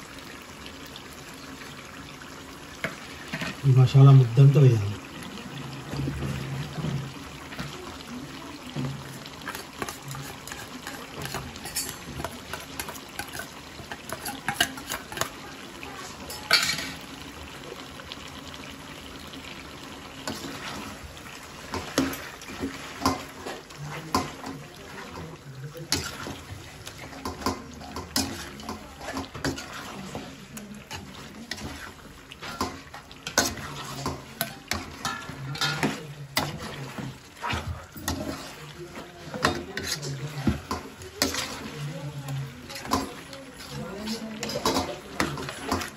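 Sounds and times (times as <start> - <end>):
metal spatula scraping a pan: 8.8 - 17.1, 20.2 - 45.9.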